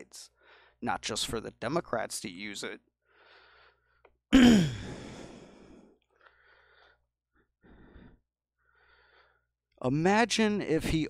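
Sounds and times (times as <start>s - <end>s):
man sighing heavily: 4.3s - 5.8s.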